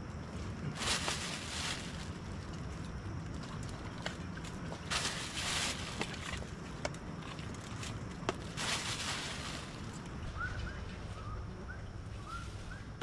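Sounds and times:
bird chirping: 0:10.2 - 0:13.0.

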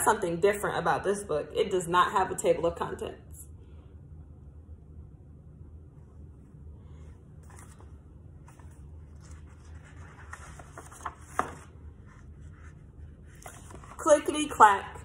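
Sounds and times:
book pages rustling: 0:07.0 - 0:14.5.

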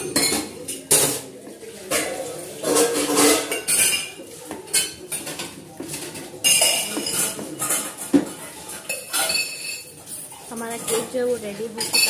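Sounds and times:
metal spoon scraping saucepan: 0:01.9 - 0:05.4.

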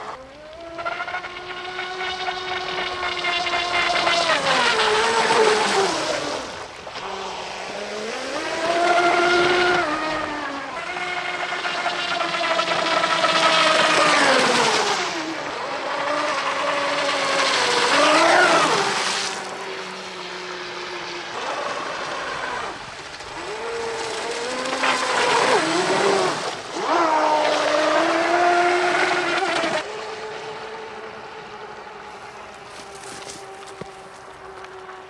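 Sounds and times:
electric motor whining: 0:00.0 - 0:35.0.

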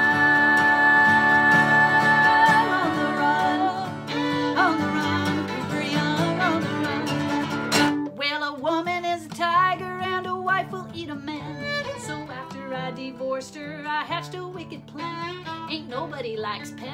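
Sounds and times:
people singing: 0:00.0 - 0:07.4
fiddle playing: 0:00.0 - 0:08.0, 0:11.1 - 0:13.2, 0:14.8 - 0:16.2
acoustic guitar strumming: 0:00.0 - 0:08.2, 0:08.9 - 0:16.9.

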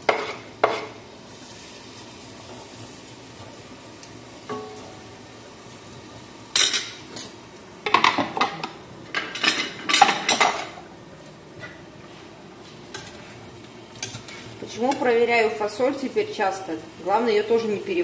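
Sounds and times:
metal pots and lid clattering: 0:07.9 - 0:10.8.

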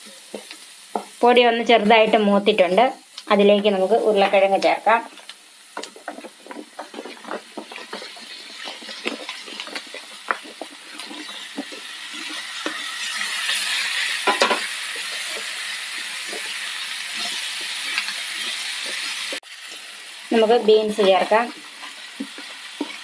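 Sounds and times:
sizzling in hot oil: 0:00.0 - 0:23.0
wooden spatula knocking pan: 0:05.8 - 0:12.8, 0:14.2 - 0:15.5.

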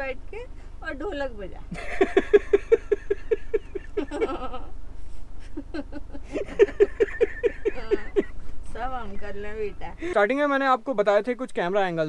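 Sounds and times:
man and woman laughing: 0:01.7 - 0:04.7, 0:05.4 - 0:09.4.

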